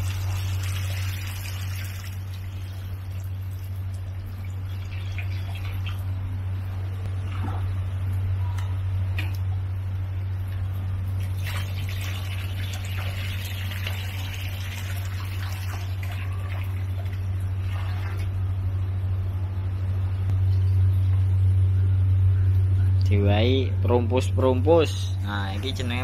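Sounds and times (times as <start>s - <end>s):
water sloshing and bubbling: 0.0s - 18.9s
low hum: 0.0s - 26.0s.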